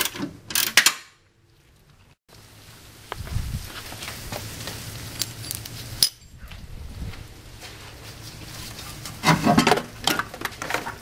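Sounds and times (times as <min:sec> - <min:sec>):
metal hand tools clinking: 0:05.2 - 0:06.4.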